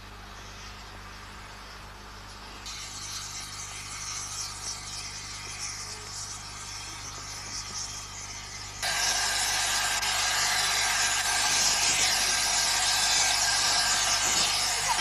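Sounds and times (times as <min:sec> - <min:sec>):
steam locomotive blowing off steam: 0:02.7 - 0:15.0.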